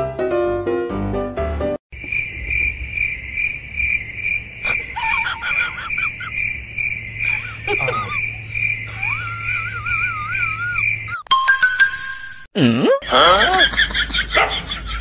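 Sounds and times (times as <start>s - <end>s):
wavering whine-like cries: 4.6s - 11.2s.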